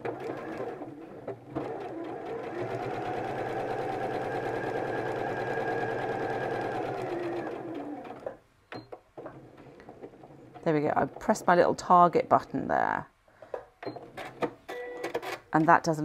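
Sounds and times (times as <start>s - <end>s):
sewing machine running: 0.0s - 8.2s.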